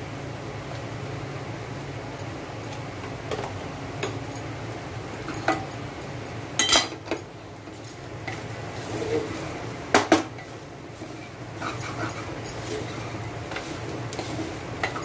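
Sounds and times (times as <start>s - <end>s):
steady low hum: 0.0s - 15.0s
wooden spatula scraping a pot: 7.7s - 15.0s.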